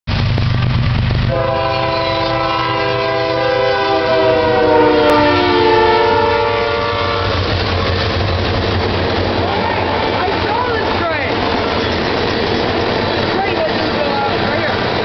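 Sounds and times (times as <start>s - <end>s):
diesel engines rumbling: 0.1s - 15.0s
locomotive air horn: 1.3s - 7.5s, 9.5s - 10.3s.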